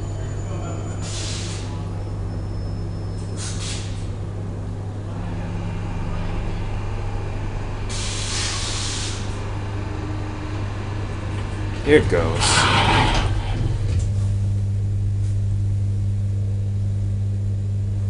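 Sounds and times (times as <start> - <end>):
train low hum: 0.0 - 18.0
pneumatic air hiss: 1.0 - 1.8, 3.2 - 4.1, 7.9 - 9.4.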